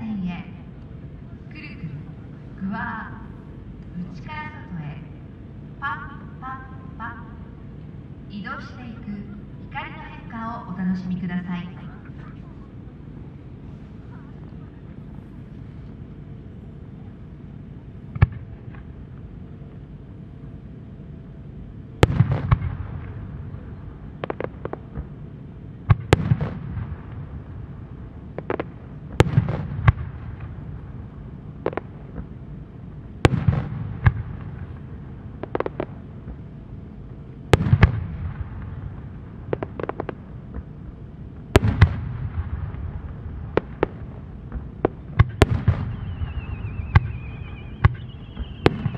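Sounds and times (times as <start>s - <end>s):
rolling echo: 0.0s - 48.9s
firework booms: 22.0s - 25.2s, 25.8s - 32.4s, 33.2s - 36.5s, 37.5s - 40.8s, 41.4s - 48.9s.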